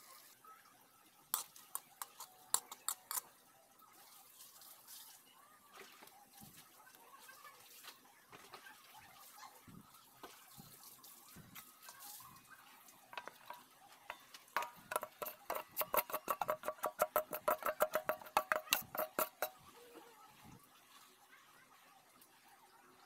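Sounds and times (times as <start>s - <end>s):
metal spoon clinking in pot: 1.4s - 3.3s, 13.2s - 19.6s.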